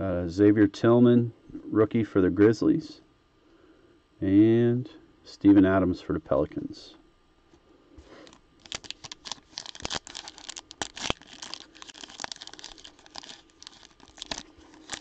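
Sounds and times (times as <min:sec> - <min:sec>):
foil wrapper crinkling and tearing: 0:08.1 - 0:15.0.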